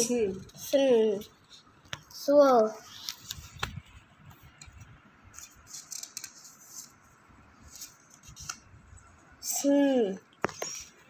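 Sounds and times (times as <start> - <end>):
paper cards rustling: 2.9 - 8.7.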